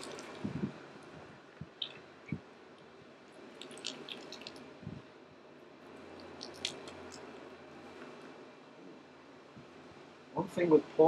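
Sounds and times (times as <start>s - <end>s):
wet clay squelching: 3.3s - 4.7s, 6.1s - 7.3s.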